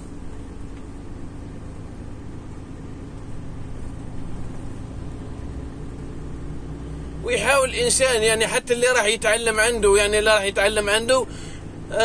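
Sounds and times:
truck diesel engine drone: 0.0s - 12.0s
tyres hissing on wet road: 11.2s - 11.9s.

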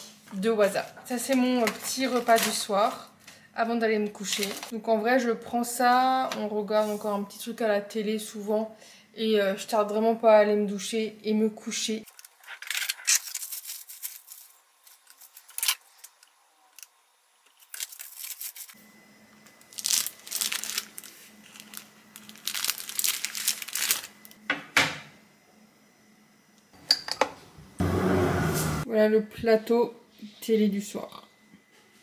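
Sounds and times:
paper wrapper crinkling: 1.2s - 3.0s, 4.2s - 4.7s, 12.0s - 16.9s, 17.5s - 18.8s, 19.5s - 24.4s.

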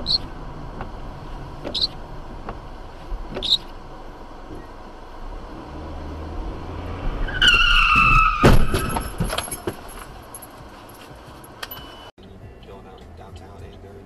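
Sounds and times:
tires squealing: 0.0s - 12.1s
car crash: 6.9s - 10.3s
debris clattering: 8.4s - 10.6s.

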